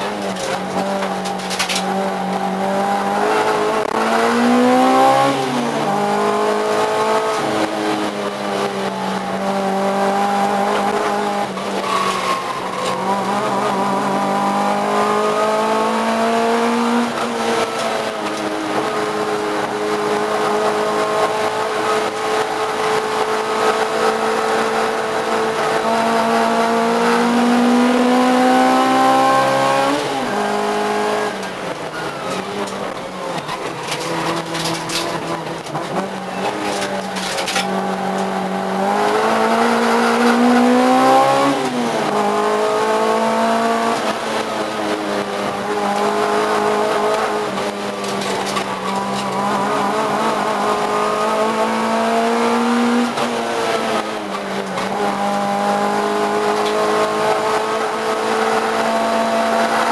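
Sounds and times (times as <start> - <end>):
race car engine running hard: 0.0 - 59.9.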